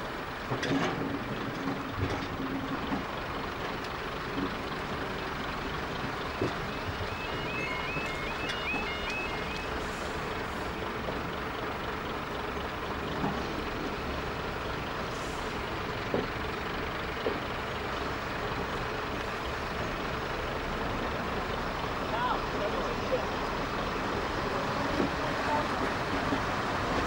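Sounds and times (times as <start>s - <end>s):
train engine and wheel noise: 0.0s - 27.0s
level crossing warbling alarm: 6.4s - 10.3s.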